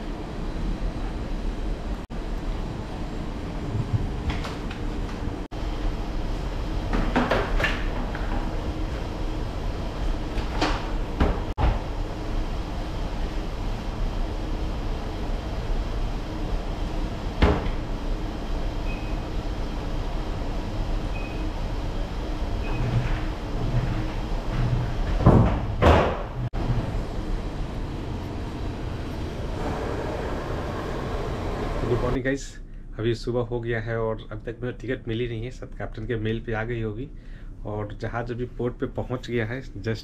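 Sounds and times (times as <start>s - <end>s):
low machinery hum: 0.0s - 40.0s
doors knocking and clicking shut: 22.6s - 26.8s.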